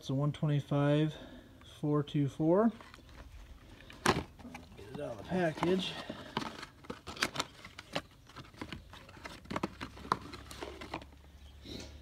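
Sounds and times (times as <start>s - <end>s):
cardboard box rustling: 2.7s - 11.2s.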